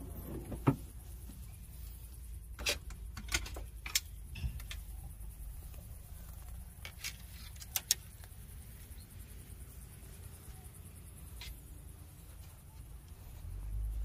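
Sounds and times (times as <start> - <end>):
fishing rods and reels clicking: 6.7 - 8.5.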